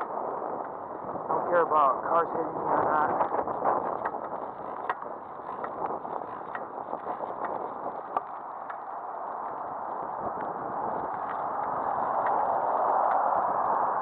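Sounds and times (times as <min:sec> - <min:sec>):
bicycle tyres on road: 0:00.0 - 0:14.0
wind over microphone: 0:00.0 - 0:14.0
small clicks and rattles: 0:03.2 - 0:09.6.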